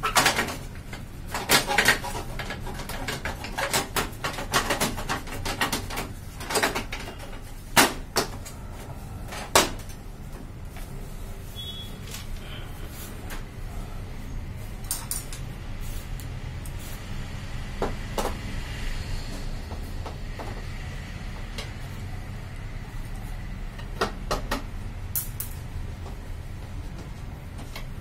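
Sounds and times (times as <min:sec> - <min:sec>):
steady low hum: 0:06.1 - 0:24.0.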